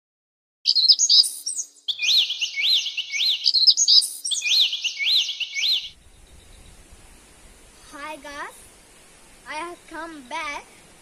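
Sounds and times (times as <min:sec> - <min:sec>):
bird chirp sound effect: 0:00.7 - 0:06.0.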